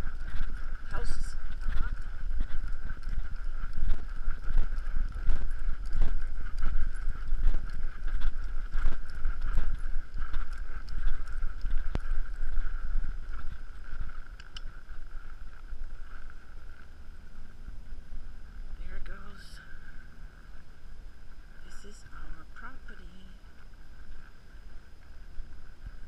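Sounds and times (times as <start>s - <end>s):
hooves thumping on sand: 0.0s - 14.7s
low rumble of movement: 0.0s - 26.0s
steady high hum: 0.0s - 26.0s.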